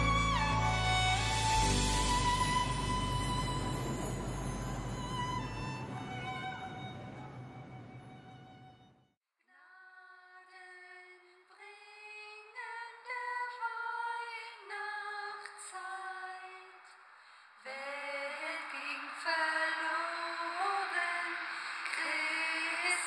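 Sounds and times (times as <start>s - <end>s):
woman singing unaccompanied: 9.5s - 16.9s, 17.6s - 23.0s.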